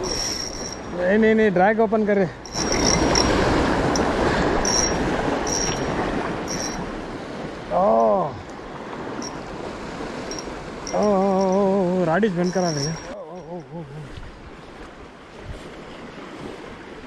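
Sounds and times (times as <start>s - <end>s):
river water rushing: 0.0s - 17.0s
man exclaiming: 7.7s - 8.4s.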